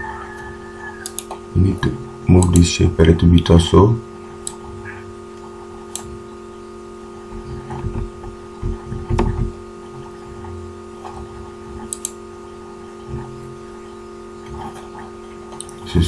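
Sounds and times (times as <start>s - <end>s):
steady electrical hum: 0.0s - 16.0s
dull knocks: 7.7s - 9.6s.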